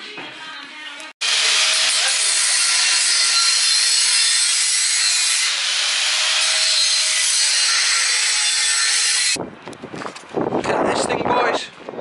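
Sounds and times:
angle grinder cutting steel: 0:01.2 - 0:09.4.

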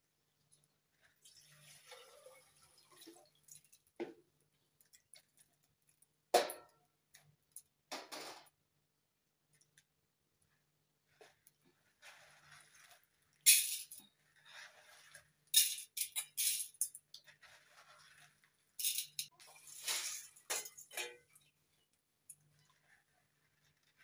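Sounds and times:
beans rustling: 0:10.9 - 0:20.6, 0:21.5 - 0:24.0
dry beans rattling: 0:11.7 - 0:21.0.

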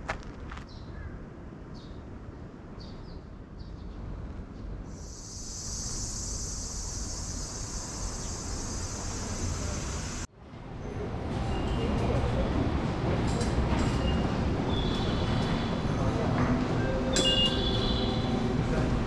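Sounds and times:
cicadas droning: 0:04.9 - 0:10.3.

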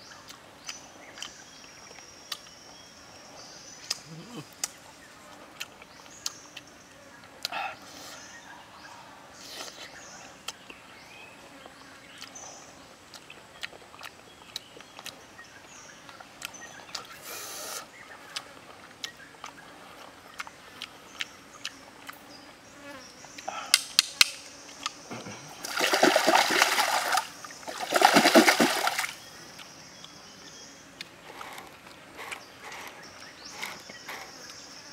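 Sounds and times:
stream water splashing: 0:25.6 - 0:29.3.

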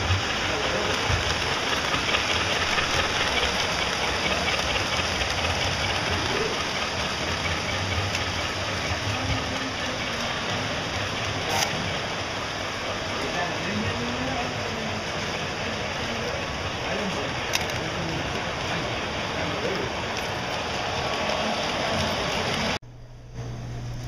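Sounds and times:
people talking: 0:00.0 - 0:04.7, 0:05.8 - 0:07.1, 0:08.8 - 0:12.0, 0:13.0 - 0:20.1
model trains rumbling: 0:00.0 - 0:22.8.

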